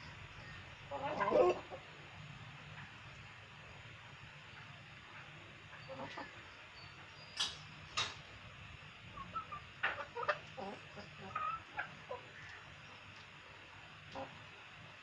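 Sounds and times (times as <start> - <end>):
chickens clucking: 0.0 - 2.0, 4.5 - 8.3, 9.1 - 14.7.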